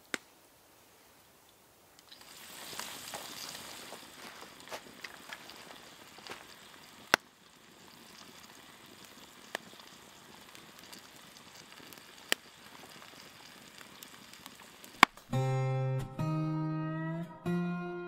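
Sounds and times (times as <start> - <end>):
sharp pops from fire: 0.0 - 0.4, 2.0 - 15.4
wood fire crackling: 0.0 - 15.5
soft steady hiss: 0.0 - 18.0.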